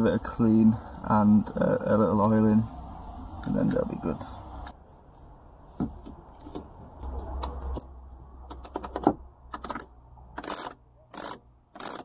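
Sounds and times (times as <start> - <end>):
metal clicks and knocks of winch: 6.4 - 12.0.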